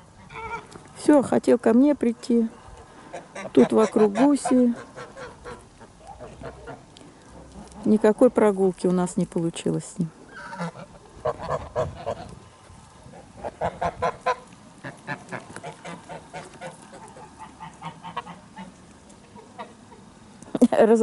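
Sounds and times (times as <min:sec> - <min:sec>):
geese honking: 0:00.2 - 0:00.8, 0:03.0 - 0:08.0, 0:10.3 - 0:20.2.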